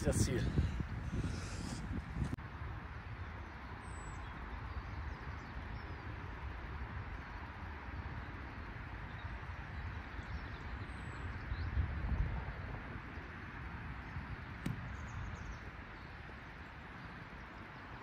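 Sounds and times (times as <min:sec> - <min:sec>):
wind rumbling on microphone: 0:00.0 - 0:18.0
bird chirping: 0:08.5 - 0:11.8, 0:14.0 - 0:18.0.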